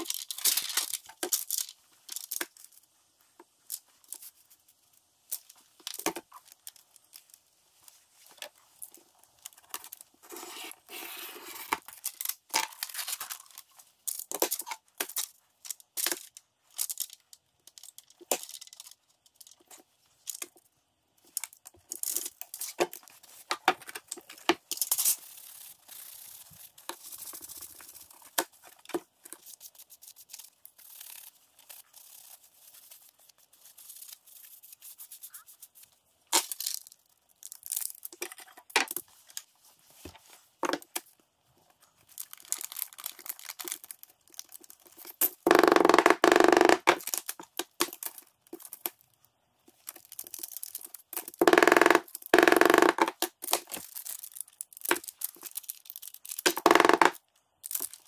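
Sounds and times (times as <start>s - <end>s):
foil crinkling: 41.9s - 45.2s, 53.3s - 56.6s.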